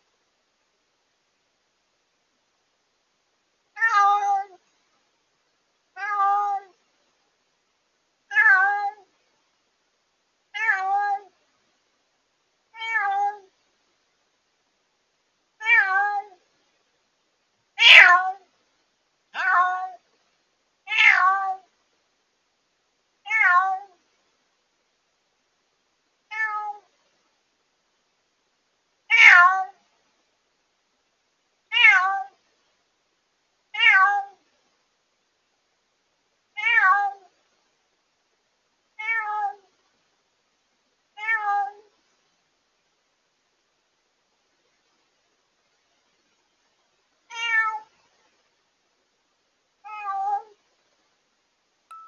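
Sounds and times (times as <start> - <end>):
cat meowing loudly: 3.8 - 4.6, 6.0 - 6.7, 8.3 - 9.1, 10.6 - 11.3, 12.8 - 13.5, 15.6 - 16.4, 17.8 - 18.4, 19.4 - 20.0, 20.9 - 21.7, 23.3 - 23.9, 26.3 - 26.9, 29.1 - 29.8, 31.7 - 32.4, 33.8 - 34.4, 36.6 - 37.3, 39.0 - 39.6, 41.2 - 41.8, 47.3 - 47.9, 49.8 - 50.6.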